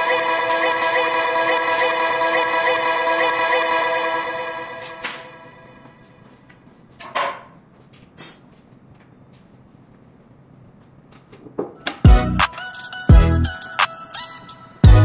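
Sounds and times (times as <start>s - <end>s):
music with deep bass beats: 12.0s - 15.0s.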